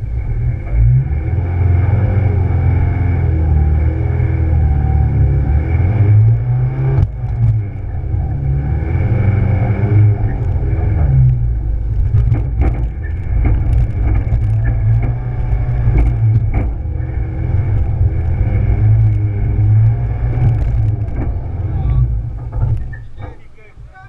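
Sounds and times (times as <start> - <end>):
rally car engine revving: 0.0 - 24.0
car knocks and rattles: 0.1 - 24.0.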